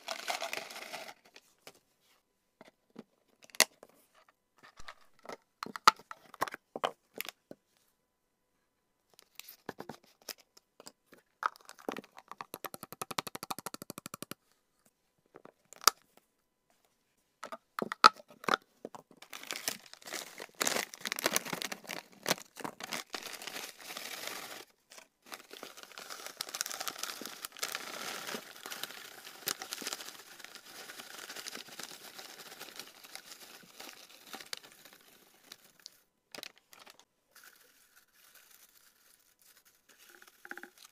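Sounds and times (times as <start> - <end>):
bag crinkling: 0.0 - 1.3, 19.2 - 36.0
dried leaves rustling and crunching: 22.9 - 35.9, 37.4 - 40.9.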